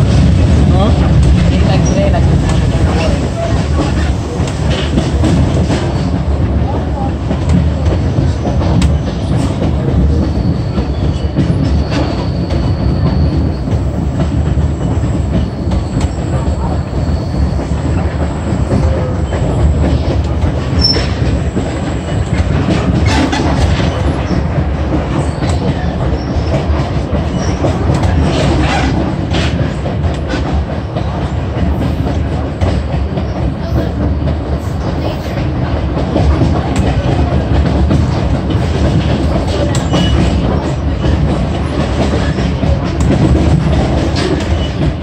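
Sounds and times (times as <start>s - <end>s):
rail-joint clicks: 0.0s - 45.0s
train wheels rumbling on rails: 0.0s - 45.0s
faint high wheel squeal: 10.1s - 13.8s, 14.8s - 18.0s.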